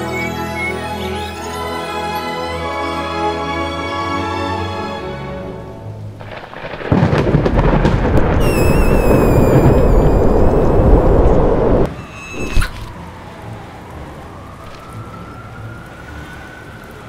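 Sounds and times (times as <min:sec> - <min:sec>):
high wavering whistle-like tone: 0:00.0 - 0:02.3, 0:08.4 - 0:10.8, 0:11.9 - 0:12.9
deep thunderous rumble: 0:06.2 - 0:11.9.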